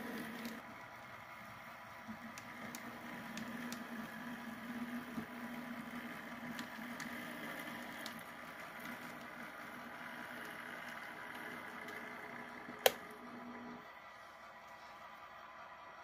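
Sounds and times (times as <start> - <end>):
wheels clicking on rails: 0.0 - 13.0
model train motor hum: 0.0 - 16.0.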